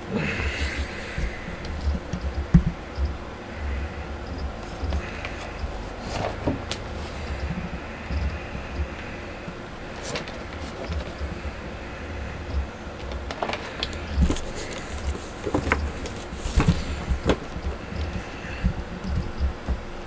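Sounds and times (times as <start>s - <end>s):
knocks and rubs on cardboard box: 14.2s - 19.8s.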